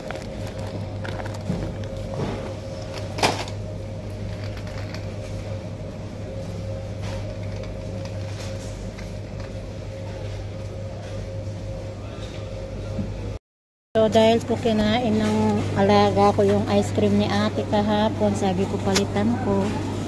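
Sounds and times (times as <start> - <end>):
plastic bag rustling: 0.0 - 2.2
low machine hum: 0.0 - 13.4, 14.0 - 20.0.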